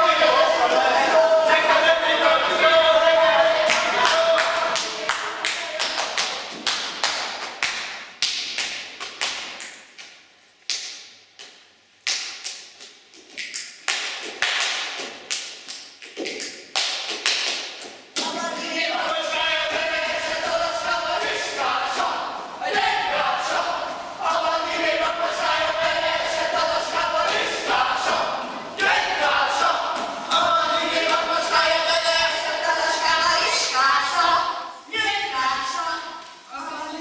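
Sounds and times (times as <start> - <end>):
group chanting or singing: 0.0 - 7.3, 18.2 - 37.0.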